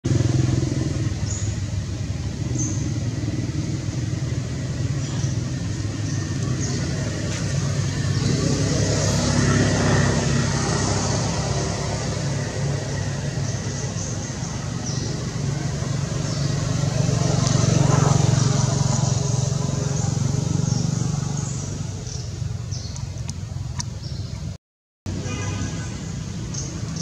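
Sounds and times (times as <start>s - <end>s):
vehicle engine rumble: 0.0s - 27.0s.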